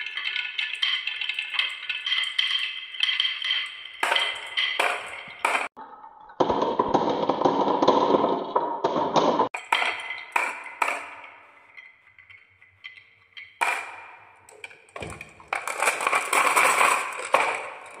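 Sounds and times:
glass marbles clinking: 0:03.5 - 0:05.7, 0:09.5 - 0:18.0
marbles rattling in plastic truck: 0:13.6 - 0:18.0.

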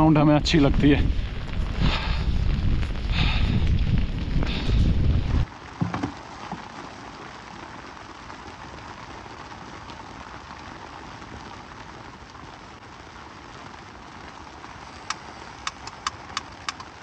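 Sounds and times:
rain pattering on tent fabric: 0:00.0 - 0:17.0
sharp knocks: 0:05.8 - 0:06.2.

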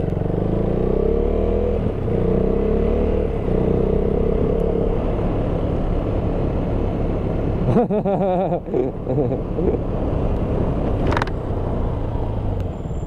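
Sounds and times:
motorcycle engine running: 0:00.0 - 0:07.9.

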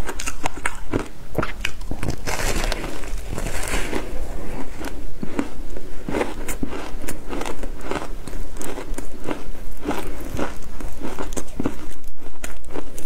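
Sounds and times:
shaved ice crunching: 0:02.1 - 0:04.8.

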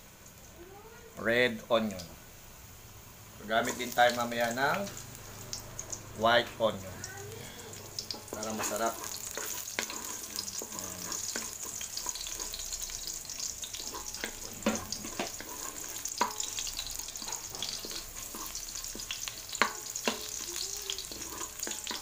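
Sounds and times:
garlic and onion sizzling in oil: 0:00.0 - 0:22.0
wooden spatula scraping a wok: 0:07.4 - 0:22.0.

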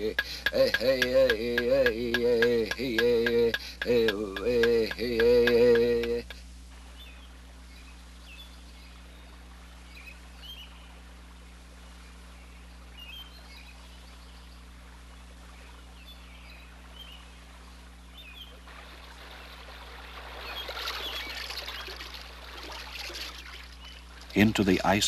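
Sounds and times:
steady low hum: 0:00.0 - 0:25.0
water splashing and rushing: 0:18.6 - 0:24.7.

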